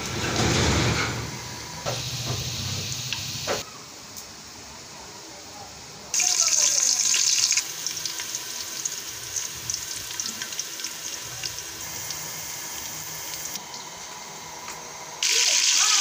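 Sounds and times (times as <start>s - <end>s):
onions sizzling in hot oil: 1.9s - 3.6s, 6.2s - 13.6s, 15.2s - 16.0s.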